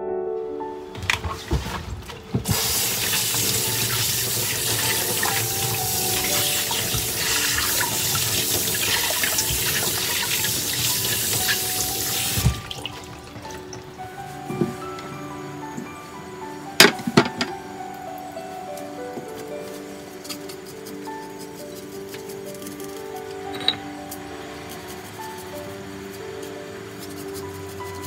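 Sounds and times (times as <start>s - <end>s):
corn cobs rubbed under water: 2.4s - 13.1s.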